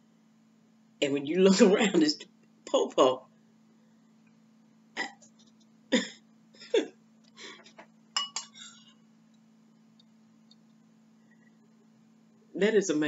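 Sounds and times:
spoon clinking against ceramic bowl: 8.2s - 8.8s.

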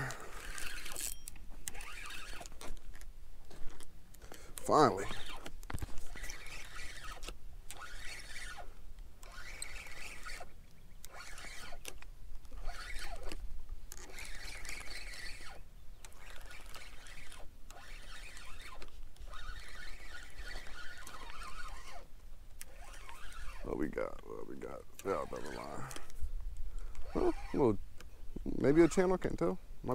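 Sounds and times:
brief squeaks: 0.0s - 2.8s, 14.0s - 23.8s
fishing reel whirring and rattling: 0.0s - 3.0s, 3.6s - 27.8s, 28.4s - 29.5s.

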